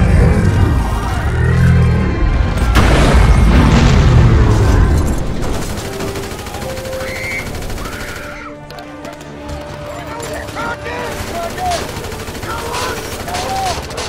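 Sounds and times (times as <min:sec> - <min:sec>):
heavy explosion: 0:02.4 - 0:05.7
battle noise: 0:02.4 - 0:14.0.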